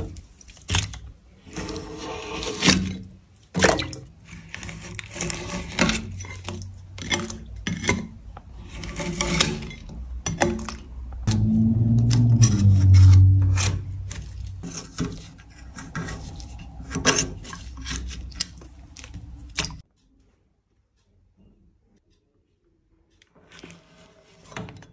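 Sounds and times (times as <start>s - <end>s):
loud low hum: 11.3s - 14.9s.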